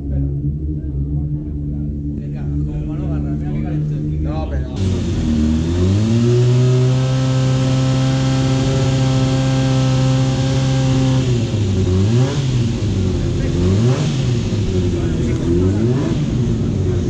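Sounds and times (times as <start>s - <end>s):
motorcycle engine revving: 4.7s - 17.0s.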